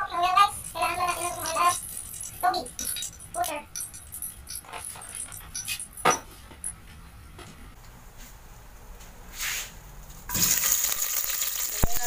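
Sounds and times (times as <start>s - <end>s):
onions sizzling in hot oil: 10.3s - 12.0s.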